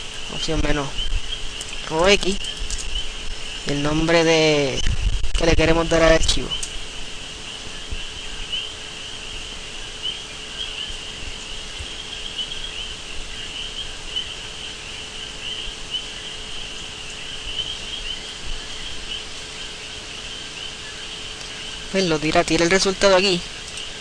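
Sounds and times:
faint hum and hiss: 0.0s - 24.0s
insects chirring: 0.0s - 24.0s.

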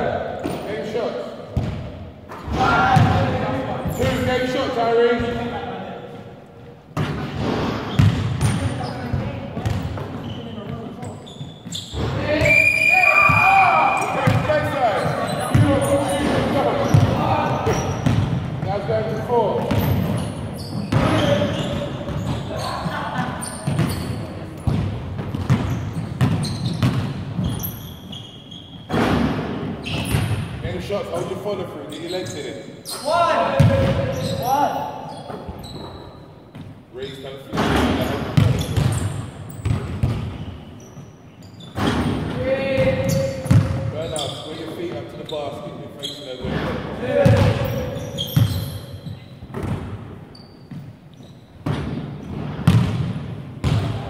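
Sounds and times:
sneakers squeaking: 0.3s - 54.0s
basketball bouncing on wooden floor: 7.0s - 12.2s, 15.5s - 18.7s, 23.2s - 27.6s, 38.4s - 40.4s, 41.8s - 43.8s, 47.2s - 47.8s, 51.6s - 54.0s.

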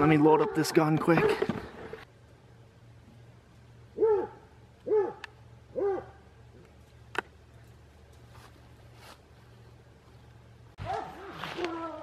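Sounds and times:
dog barking: 4.0s - 6.2s, 10.8s - 11.5s.

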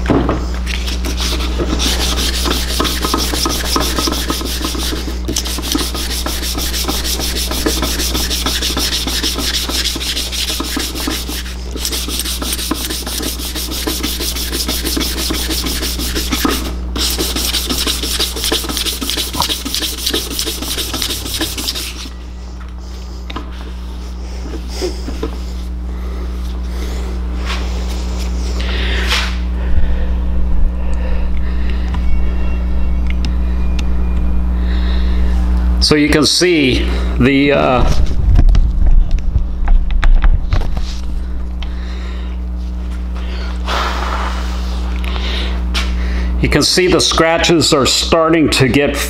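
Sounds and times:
hand sanding metal: 0.8s - 22.2s.

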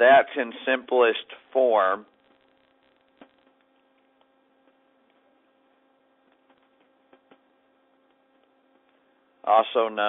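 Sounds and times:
faint electrical hum: 0.0s - 10.0s
stylus tapping tablet screen: 6.2s - 9.0s.

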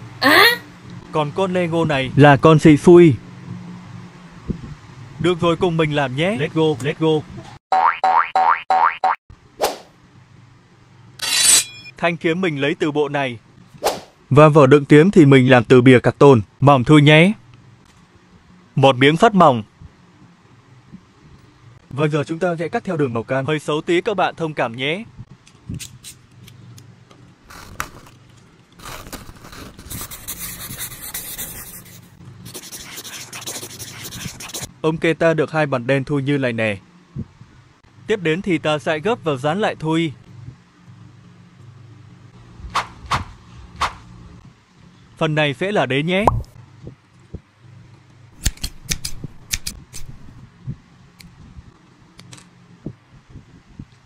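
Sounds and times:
knife scraping cardboard: 28.8s - 31.6s
marker rubbing on card: 28.8s - 34.7s
scissors snipping card: 48.4s - 50.3s.

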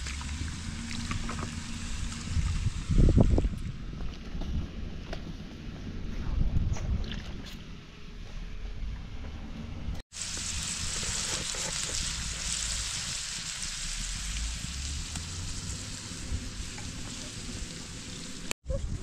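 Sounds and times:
carrots sizzling in a pan: 10.1s - 18.5s.

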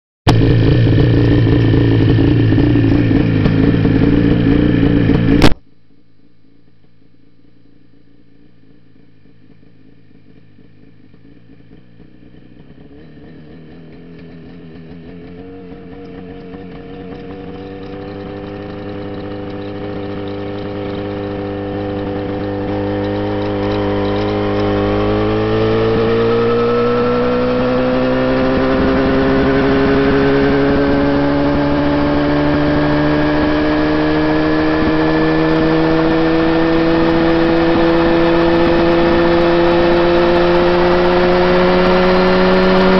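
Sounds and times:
helicopter engine and rotor spinning up: 16.0s - 42.9s.

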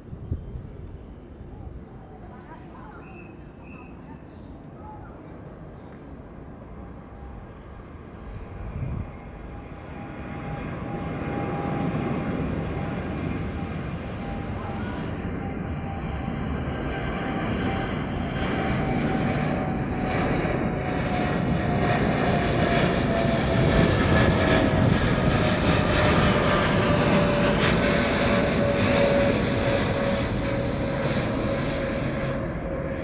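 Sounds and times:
jet engine roar with whine: 0.0s - 33.0s.

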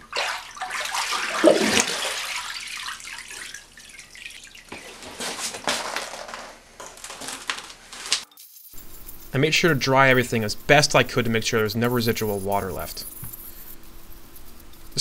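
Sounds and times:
water dripping into a tub: 0.0s - 5.2s
water sloshing in a plastic tub: 0.0s - 6.4s.

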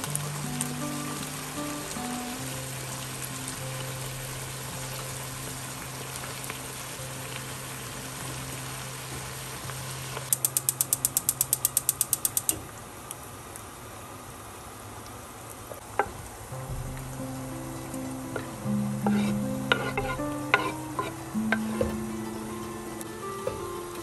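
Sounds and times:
pan hissing on stove: 0.0s - 12.7s, 15.8s - 24.0s
gas hob igniter clicking: 10.3s - 12.7s.

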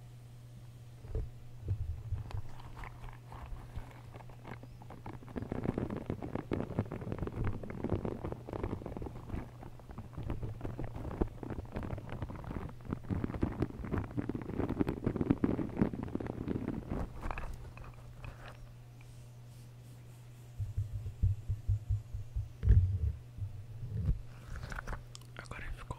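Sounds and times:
low steady hum: 0.0s - 25.9s
squeeze toy crackling on microphone: 2.0s - 18.7s.

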